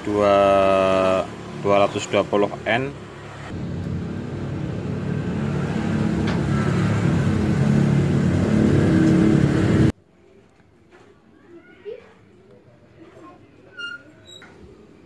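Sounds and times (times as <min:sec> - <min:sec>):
vehicle engine running: 0:03.5 - 0:09.9.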